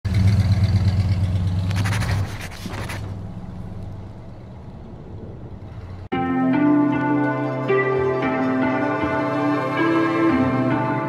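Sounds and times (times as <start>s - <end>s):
vehicle engine running: 0.0s - 6.1s.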